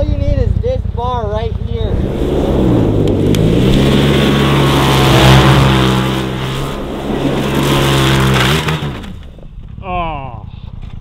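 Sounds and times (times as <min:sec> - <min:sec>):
vehicle engine at high revs: 0:00.8 - 0:09.3.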